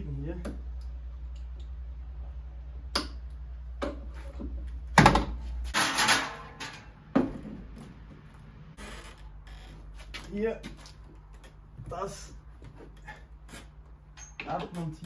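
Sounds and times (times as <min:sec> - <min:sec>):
metal stepladder rattling: 0:05.7 - 0:07.0.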